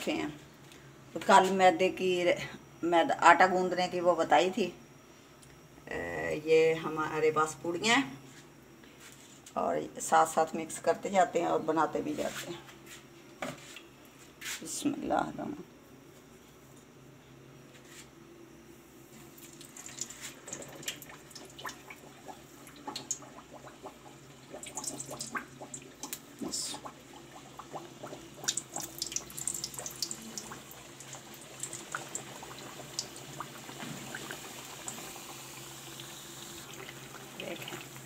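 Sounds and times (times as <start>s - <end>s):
oil crackling and popping: 19.4s - 26.3s, 26.9s - 35.1s
hot oil sizzling: 23.0s - 38.0s.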